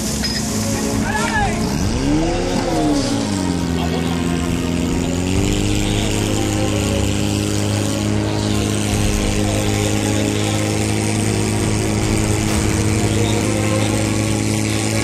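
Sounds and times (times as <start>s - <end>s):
pump engine running at high revs: 0.0s - 15.0s.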